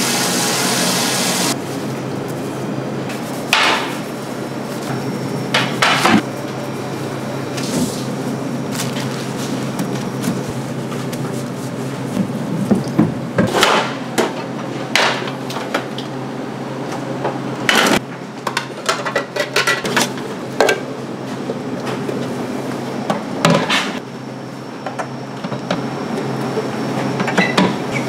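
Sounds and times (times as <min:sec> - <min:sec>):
kitchen equipment humming: 0:00.0 - 0:28.0
utensils and dishes clattering: 0:17.7 - 0:20.8.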